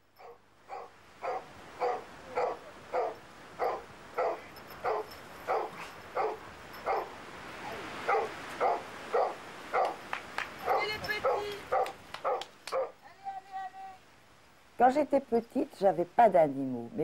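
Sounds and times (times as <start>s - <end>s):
dog barking: 0.2s - 7.2s, 8.0s - 10.0s, 10.6s - 13.0s.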